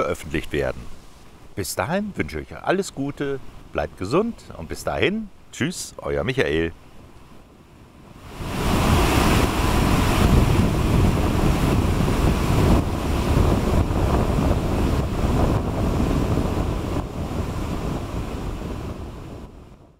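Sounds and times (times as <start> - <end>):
whitewater rapids roaring: 8.2 - 17.2.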